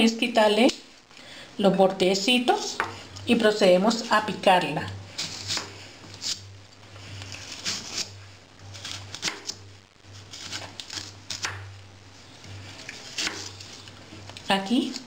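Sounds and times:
knife slicing pear: 5.2s - 6.4s, 7.3s - 9.6s, 10.2s - 11.7s, 12.7s - 13.9s.

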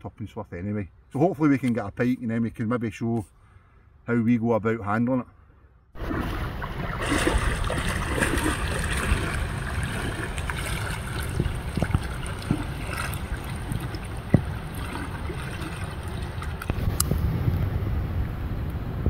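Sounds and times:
water lapping: 6.0s - 17.1s
wind buffeting microphone: 6.0s - 19.0s.

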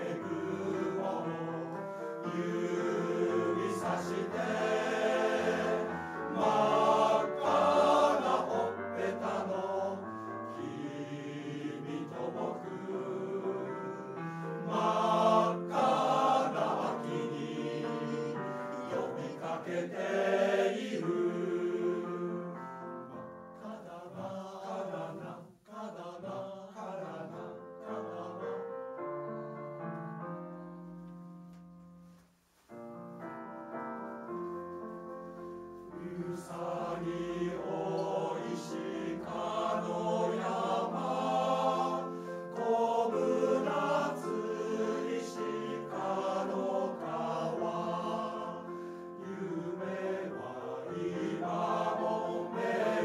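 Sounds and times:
men's choir singing: 0.0s - 22.9s, 23.6s - 28.7s, 35.9s - 53.0s.

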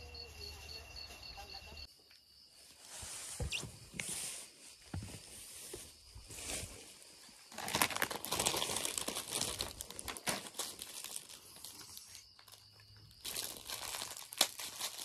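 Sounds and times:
plastic snack bags crinkling: 7.5s - 15.0s.

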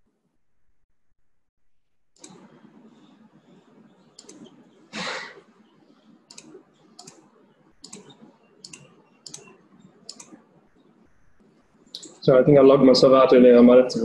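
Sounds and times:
computer mouse button clicking: 6.3s - 9.5s, 10.1s - 10.4s.

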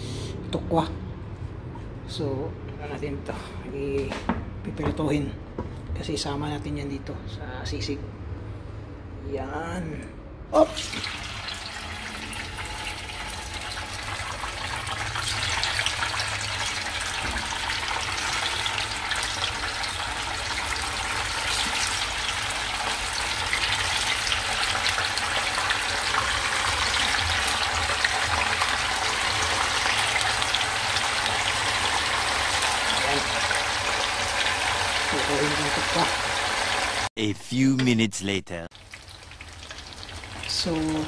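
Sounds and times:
tofu deep-frying in oil: 10.8s - 37.1s, 38.7s - 41.0s.

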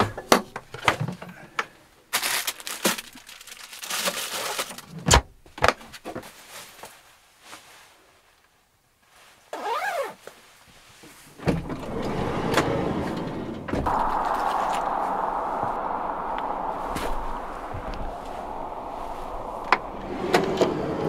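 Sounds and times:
rush of outdoor noise: 13.6s - 21.0s.

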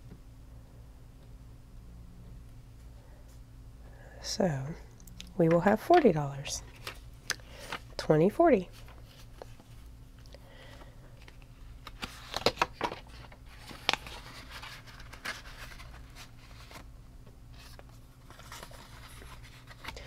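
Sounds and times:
low hum: 0.0s - 20.0s
paper money rustling: 5.4s - 8.0s, 11.8s - 16.8s.

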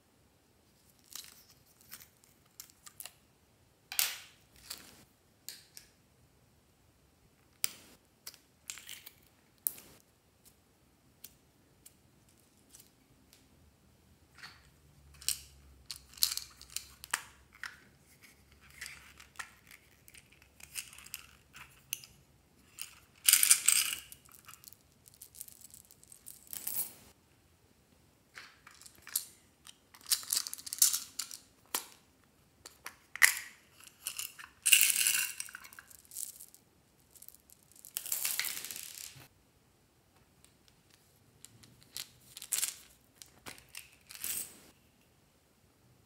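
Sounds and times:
plastic beads clicking and rattling: 29.9s - 31.9s, 32.7s - 39.3s
beads clattering when poured: 33.8s - 39.2s.

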